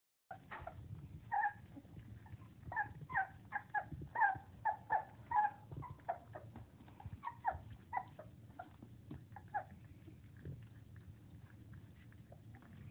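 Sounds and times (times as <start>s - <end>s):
puppies whining and squealing: 0.3s - 10.8s.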